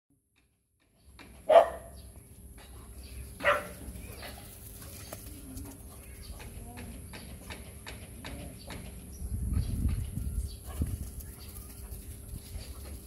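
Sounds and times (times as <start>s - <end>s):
dog barking: 1.5s - 2.0s, 3.4s - 3.8s.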